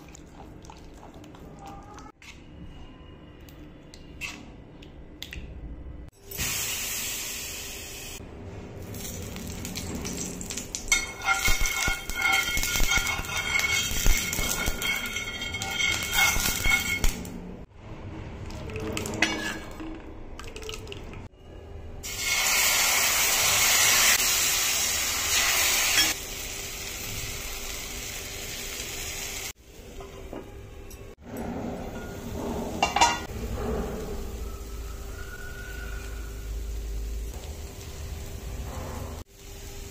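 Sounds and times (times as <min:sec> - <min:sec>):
batter sizzling on hot pan: 0:10.2 - 0:17.1.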